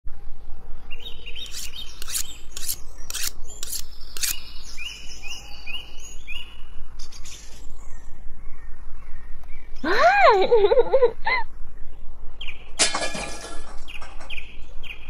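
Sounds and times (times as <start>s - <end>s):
bird chirping: 0.9s - 9.8s.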